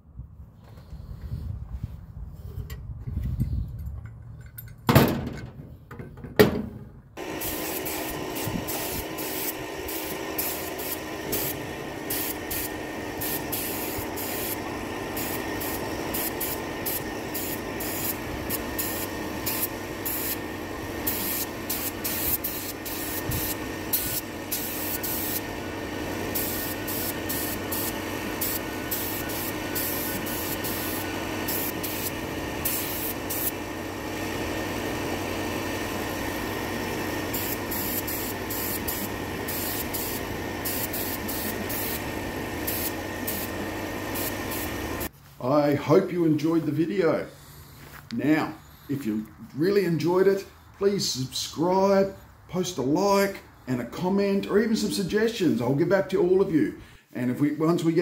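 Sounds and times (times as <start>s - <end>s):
paint spray gun hissing: 7.2s - 45.1s
steady hum: 7.2s - 45.1s.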